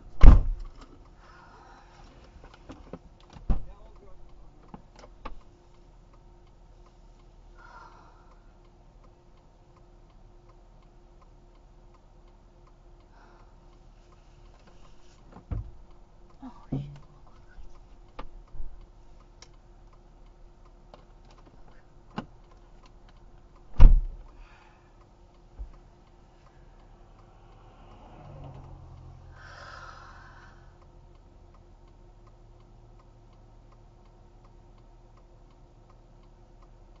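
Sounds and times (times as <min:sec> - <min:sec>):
steady low hum: 0:00.0 - 0:37.0
sharp loud thump: 0:00.2 - 0:00.6, 0:23.7 - 0:24.2
faint regular ticking: 0:00.6 - 0:37.0
vehicle passing: 0:26.6 - 0:30.7.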